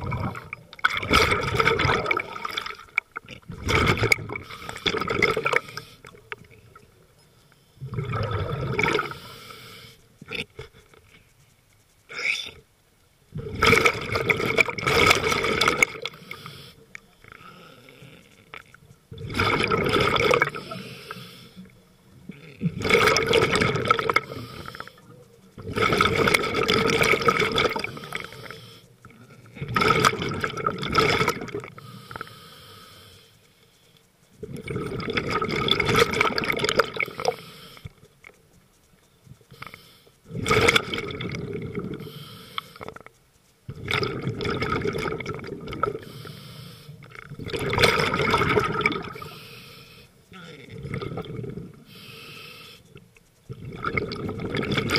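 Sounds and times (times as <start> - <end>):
exhaled bubbles underwater: 0.0 - 7.0, 7.8 - 9.2, 13.3 - 16.2, 18.6 - 20.8, 22.2 - 28.4, 29.0 - 31.8, 34.4 - 37.4, 40.3 - 42.0, 43.7 - 46.0, 47.0 - 49.4, 50.4 - 52.0, 53.4 - 54.9.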